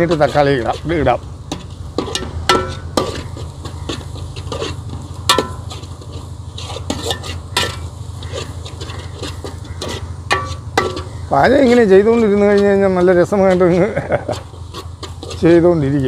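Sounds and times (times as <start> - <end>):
low steady rumble: 0.0 - 16.0
metal spoon scraping a pot: 0.0 - 16.0
onions sizzling in oil: 0.0 - 16.0
spoon clanking on pot: 1.5 - 6.2, 6.8 - 11.8.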